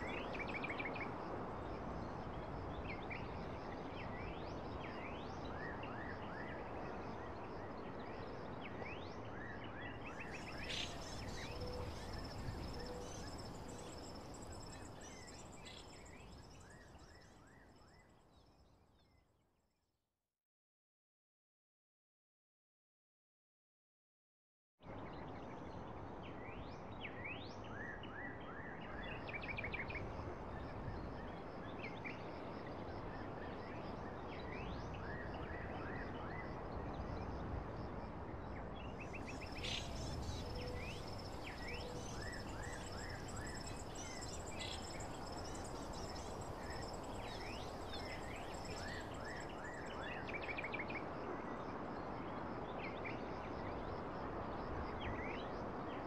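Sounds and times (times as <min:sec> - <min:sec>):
birds chirping and trilling: 0:39.1 - 0:49.5.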